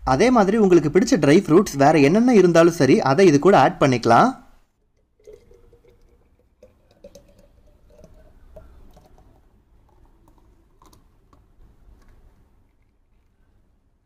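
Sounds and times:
milkshake pouring into bottle: 0:04.8 - 0:13.5.

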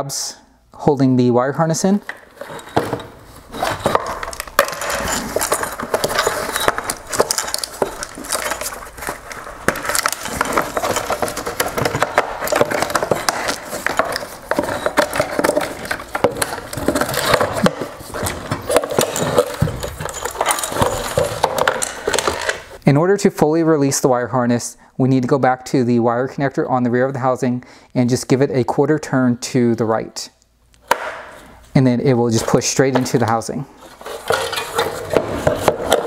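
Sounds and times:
plastic parts clicking and knocking: 0:02.0 - 0:22.8, 0:32.4 - 0:36.0.

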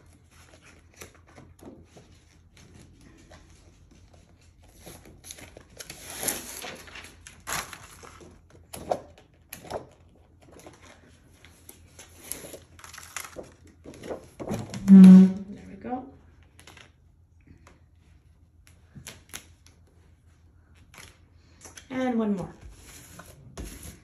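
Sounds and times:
paper rustling: 0:00.0 - 0:15.1.

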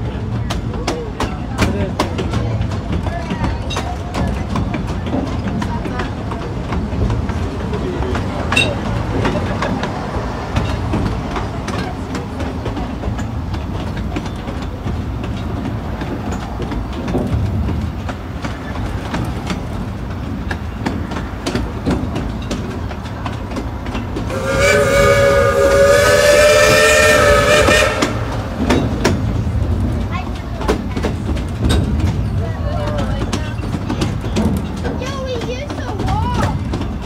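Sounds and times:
train rumble: 0:00.0 - 0:37.0
steam whistle: 0:24.3 - 0:28.6.

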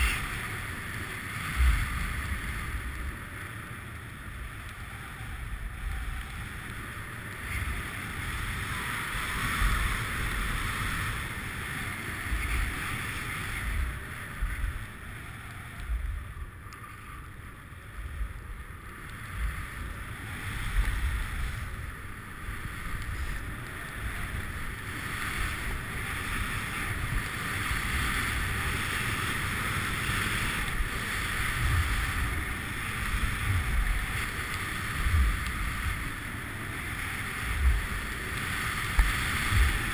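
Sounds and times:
skis sliding over snow: 0:00.0 - 0:39.9
wind rumbling on microphone: 0:00.0 - 0:39.9.

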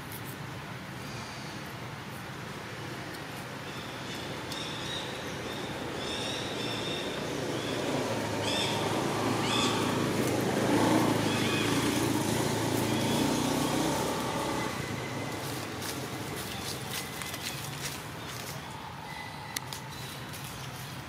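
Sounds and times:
vehicle engine droning: 0:05.4 - 0:18.5.

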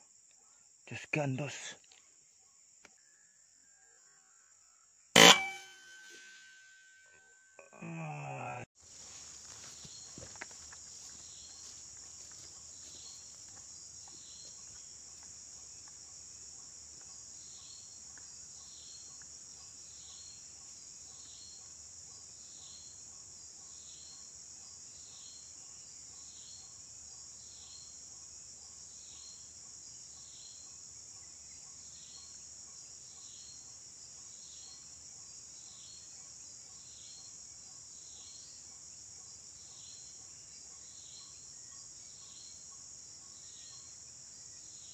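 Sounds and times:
short chirp: 0:05.2 - 0:07.3
high-pitched insect chorus: 0:07.8 - 0:44.9.

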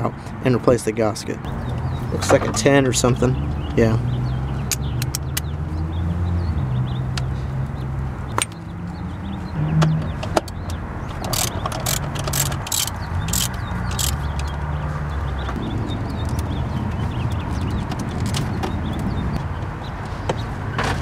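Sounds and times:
socket wrench ratcheting: 0:11.1 - 0:14.5
metal socket clicks: 0:11.3 - 0:14.2.

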